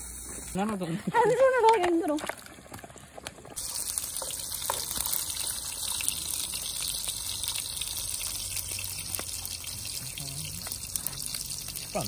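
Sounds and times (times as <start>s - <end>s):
meat sizzling in a pan: 3.6s - 12.0s.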